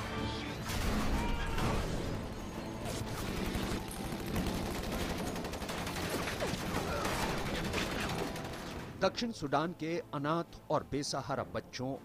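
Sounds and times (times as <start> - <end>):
rapid gunfire: 2.9 - 9.0.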